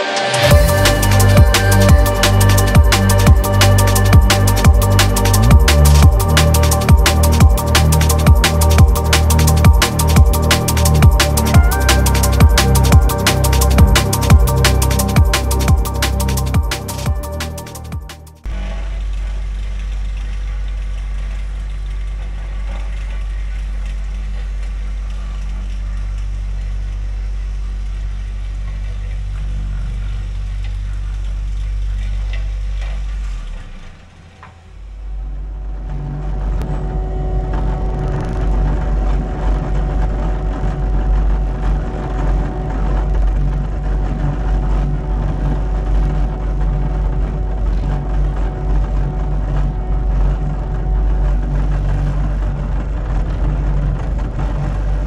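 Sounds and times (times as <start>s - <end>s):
track loader diesel engine: 0.0s - 18.8s, 31.9s - 55.0s.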